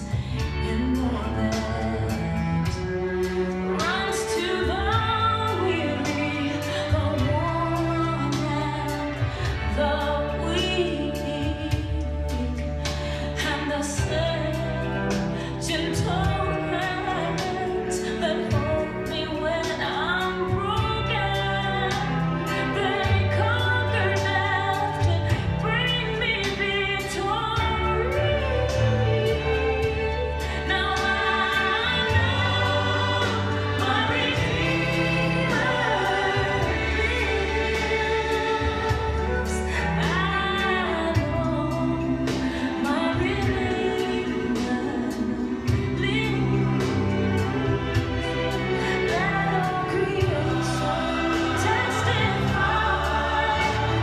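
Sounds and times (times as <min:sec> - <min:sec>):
person singing gospel: 0:27.3 - 0:47.0, 0:48.7 - 0:54.0.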